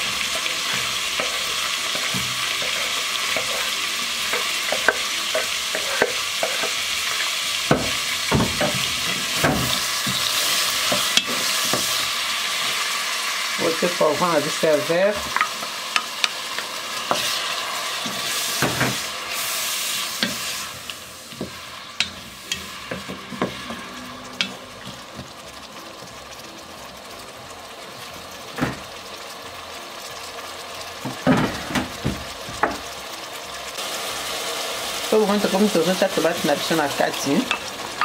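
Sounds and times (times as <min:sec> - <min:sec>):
wooden spatula stirring: 0:00.0 - 0:12.0
vegetables sizzling in a pot: 0:00.0 - 0:38.0.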